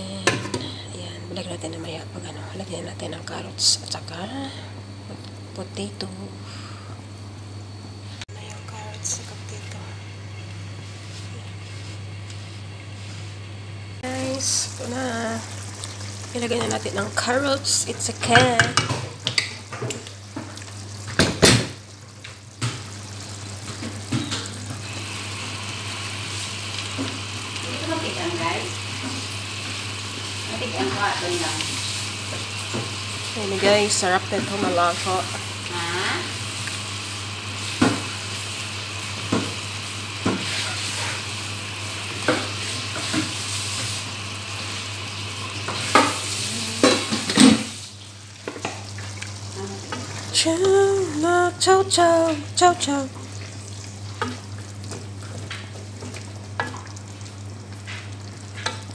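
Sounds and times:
pan simmering: 0.0s - 58.9s.

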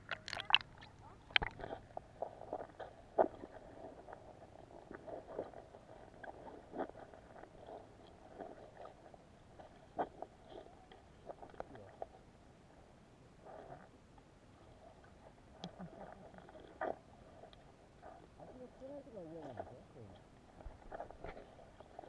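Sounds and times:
muffled underwater knocks and clicks: 0.0s - 1.8s.

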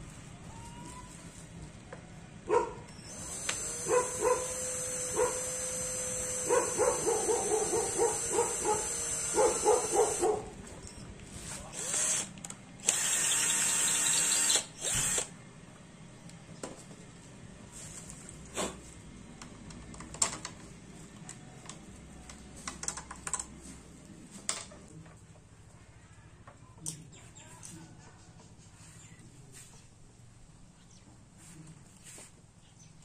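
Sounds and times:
dog barking: 2.5s - 2.9s, 3.8s - 5.5s, 6.4s - 10.6s
cordless drill whining: 2.9s - 10.3s, 11.5s - 15.3s.

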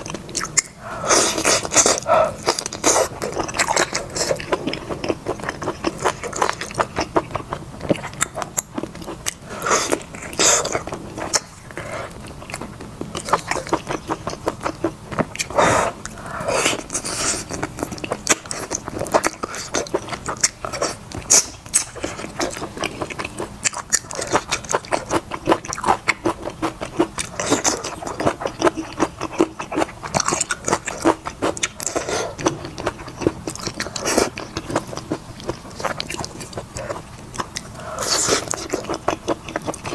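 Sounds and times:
wet chewing and biting: 0.0s - 39.9s.

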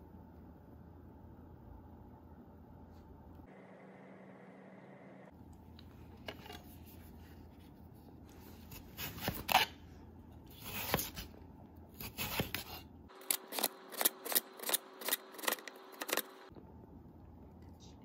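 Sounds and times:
knife slicing potato: 8.6s - 9.8s, 10.5s - 16.3s.

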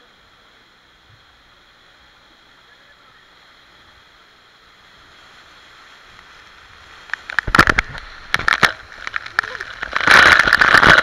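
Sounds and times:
waterfall rushing: 0.0s - 11.0s
water splashing on microphone: 2.6s - 11.0s.

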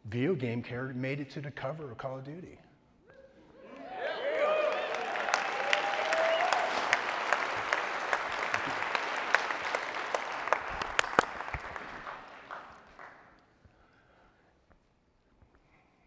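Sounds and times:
audience applauding: 3.8s - 13.4s.

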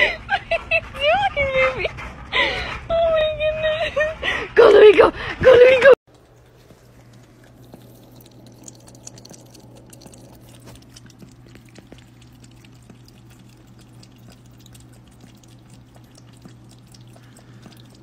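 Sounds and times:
steady low hum: 0.0s - 18.0s
cat lapping water: 6.1s - 18.0s.

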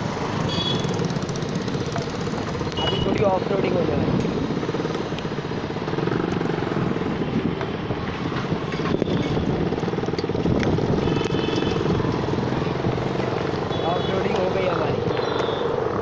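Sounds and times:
motor vehicles passing: 0.0s - 16.0s
wind rush over microphone: 3.0s - 13.6s.

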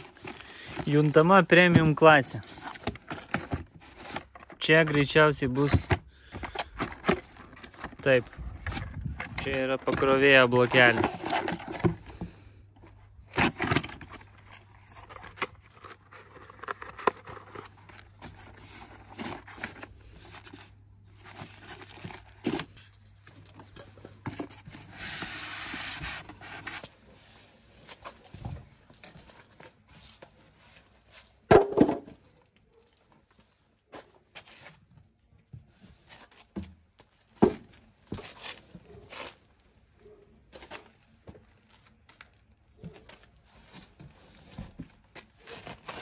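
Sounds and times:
packing clatter: 0.0s - 27.0s
cardboard and foam packing handled: 0.0s - 46.0s.

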